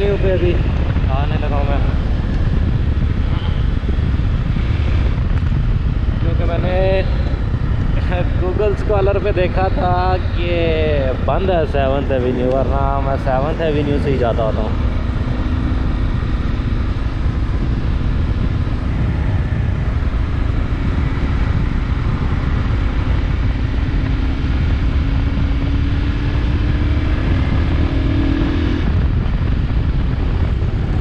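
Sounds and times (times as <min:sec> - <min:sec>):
motorcycle engine drone: 0:00.0 - 0:31.0
wind rushing over microphone: 0:00.0 - 0:31.0.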